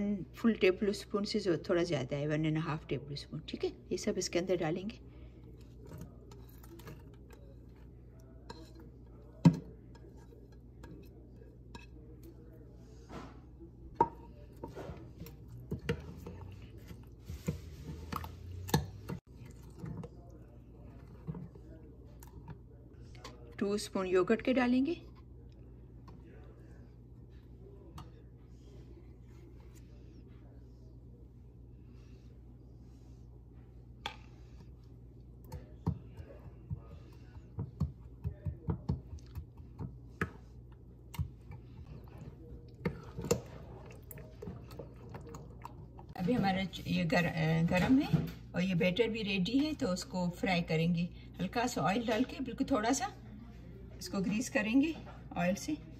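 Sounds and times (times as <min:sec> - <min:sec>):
metal spoon stirring batter: 0:05.5 - 0:12.7, 0:35.4 - 0:47.0.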